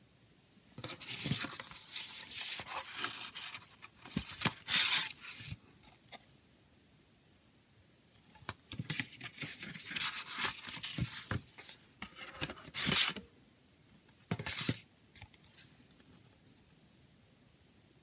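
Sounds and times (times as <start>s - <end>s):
cardboard rustling and scraping: 0.8s - 5.6s, 8.7s - 13.2s.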